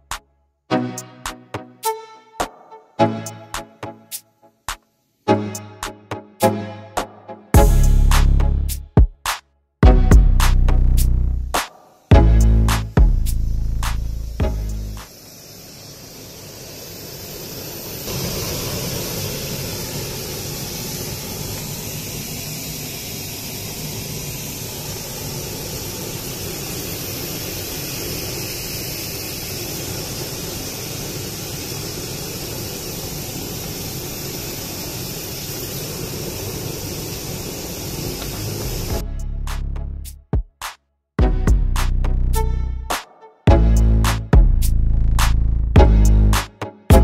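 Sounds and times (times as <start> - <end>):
compressed air blasting: 7.6 - 9.3, 10.3 - 39.7.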